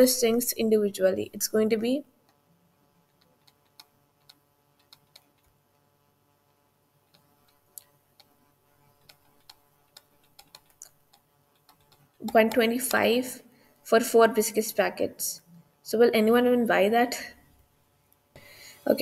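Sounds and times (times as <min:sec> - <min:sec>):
stylus tapping on a tablet: 0:03.1 - 0:05.5, 0:09.0 - 0:13.1.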